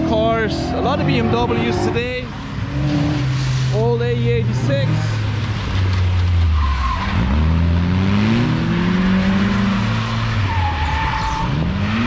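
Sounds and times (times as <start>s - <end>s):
car engine revving: 0.0s - 12.0s
tyres squealing on wet asphalt: 5.4s - 7.6s, 9.1s - 12.0s.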